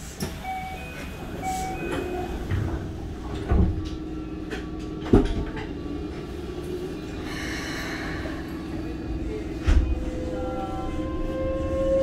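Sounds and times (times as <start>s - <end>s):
train equipment low hum: 0.0s - 12.0s.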